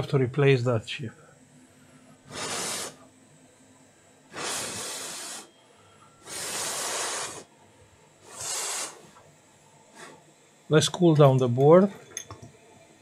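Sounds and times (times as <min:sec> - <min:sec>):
hissing bursts of blown air: 0:02.2 - 0:03.1, 0:04.3 - 0:05.5, 0:06.2 - 0:07.6, 0:08.2 - 0:09.2, 0:09.9 - 0:10.3.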